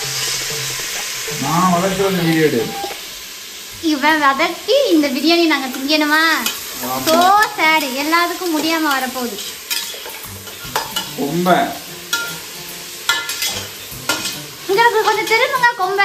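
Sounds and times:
onions sizzling: 0.0 - 16.0
person singing: 1.3 - 2.9.

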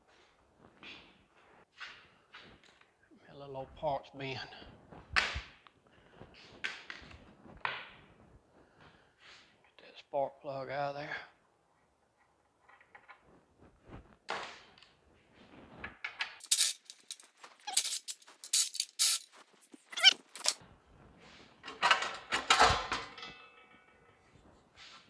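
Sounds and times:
short squeak: 19.0 - 20.6
metallic clatter and scrape: 21.2 - 25.0.

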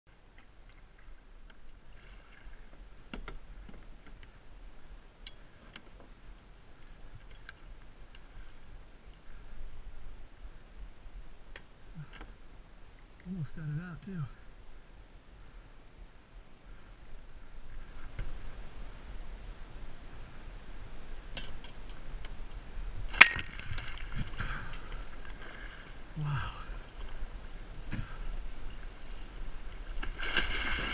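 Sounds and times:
water splashing: 23.1 - 27.3, 29.7 - 30.9.

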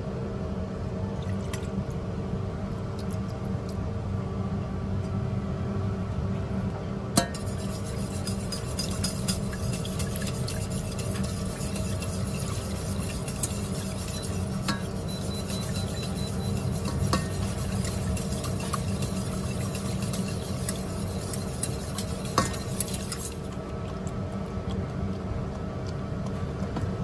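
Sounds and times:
steady low hum: 0.0 - 27.0
whisk beating eggs in metal pot: 7.2 - 25.1.

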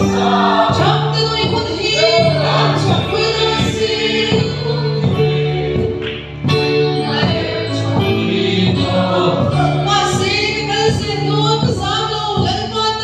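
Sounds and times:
woman singing into a microphone: 0.0 - 6.0, 9.6 - 13.0
sustained accompaniment chords: 0.0 - 11.8
congregation singing: 0.0 - 11.9.

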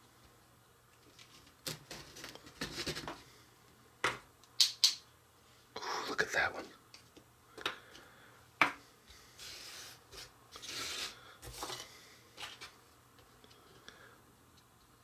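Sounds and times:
pans scraping across paper: 9.4 - 12.8.

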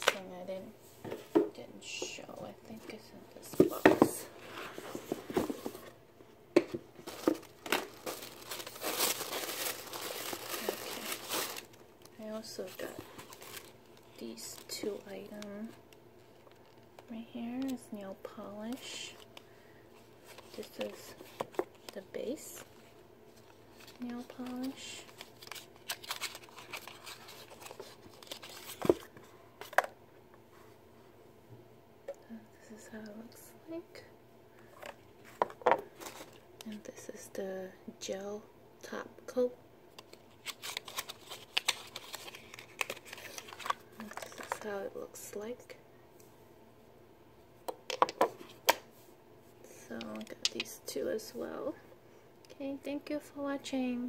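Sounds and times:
cardboard rustling and scraping: 3.4 - 6.0
tissue paper rustling: 7.0 - 11.8, 12.6 - 15.1, 22.6 - 29.1.

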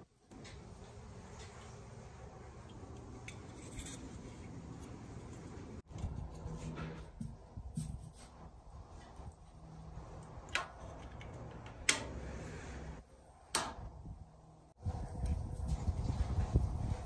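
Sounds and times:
metal clips snapping into place: 13.5 - 13.9.

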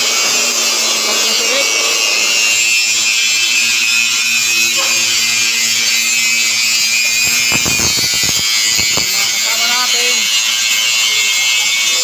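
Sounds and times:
quick run of knocks: 7.2 - 9.2.

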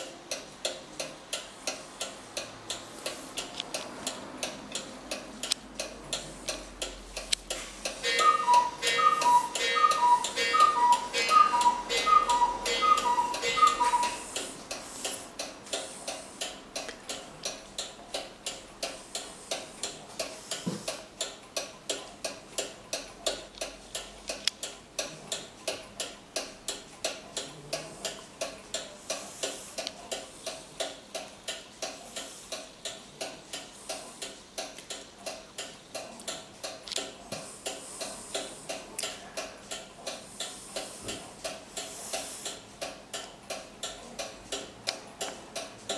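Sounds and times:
clock ticking: 0.0 - 45.9
two-tone clock bells striking: 8.0 - 14.3.

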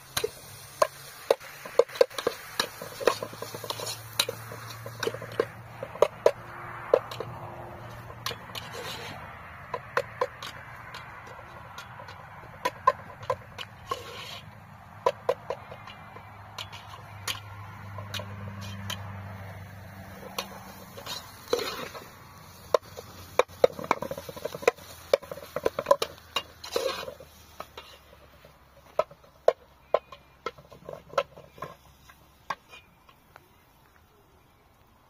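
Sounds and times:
metal spoon scraping a pot: 0.1 - 33.1.

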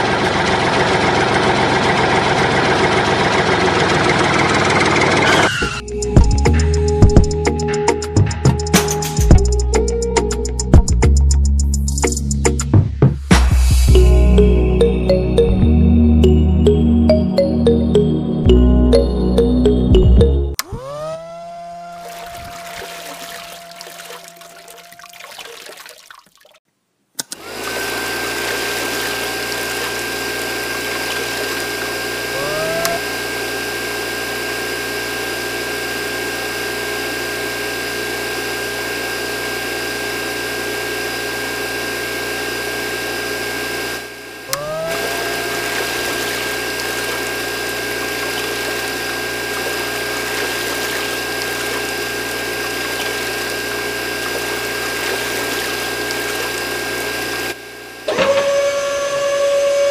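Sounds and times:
small motors whining: 20.6 - 25.0, 27.2 - 59.9
mini water pump: 20.6 - 26.6, 27.2 - 59.9.

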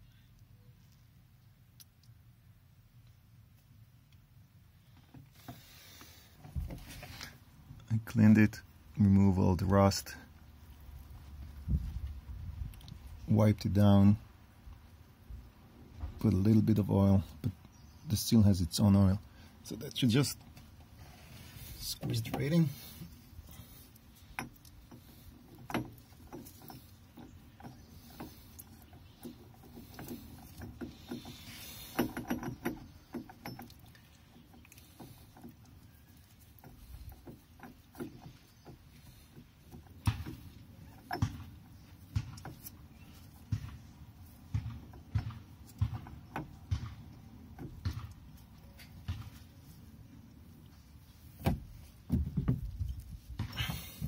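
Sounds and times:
metal parts clicking and knocking: 23.9 - 43.5.

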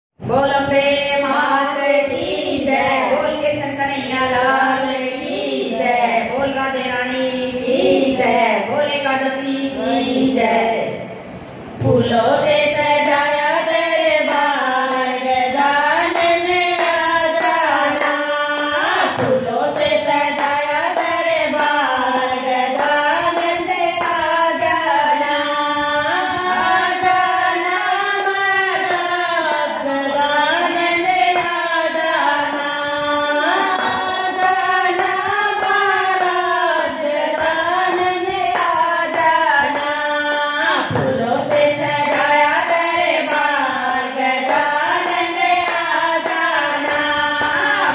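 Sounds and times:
women singing devotional song: 0.2 - 47.9
hand claps keeping time: 13.7 - 47.9.

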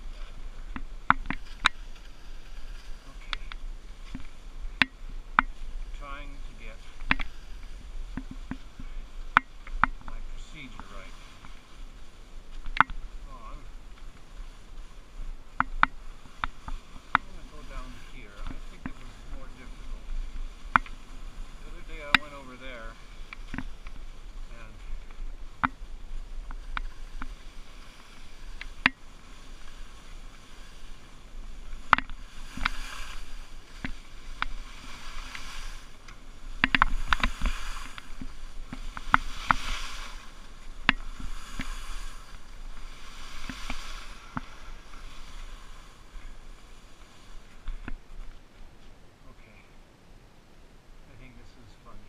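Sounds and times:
wind rumble on microphone: 0.0 - 52.0
skis swishing through slushy snow: 1.4 - 4.6, 10.2 - 15.2, 16.1 - 23.2, 25.9 - 47.6
sharp clicks and knocks: 36.6 - 38.1.

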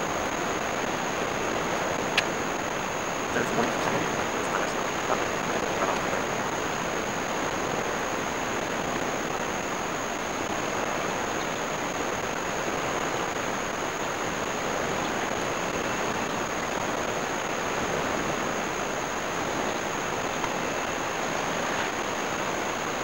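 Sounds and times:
ocean surf breaking: 0.0 - 10.8
constant thin high tone: 0.1 - 16.3.

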